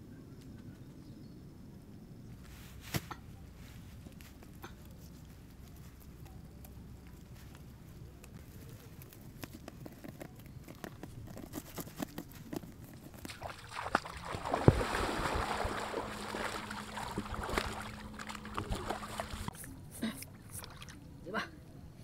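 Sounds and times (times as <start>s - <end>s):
leaves rustling: 2.3s - 19.6s
people wading through water: 13.3s - 21.2s.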